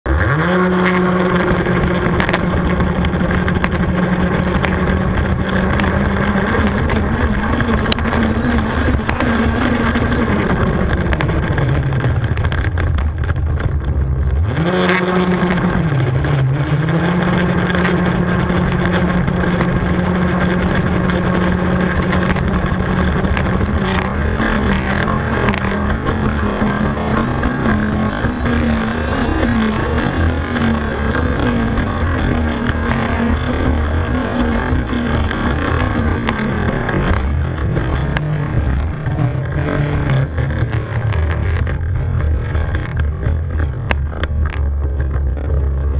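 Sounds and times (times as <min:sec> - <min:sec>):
rc buggy engine revving: 0:00.1 - 0:45.9.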